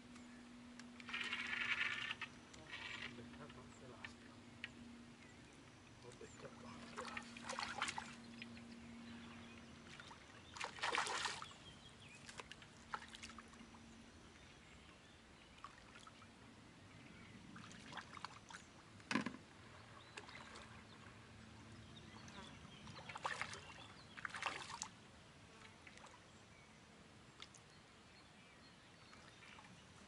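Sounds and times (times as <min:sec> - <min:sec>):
fish thrashing and splashing: 0:10.6 - 0:11.5.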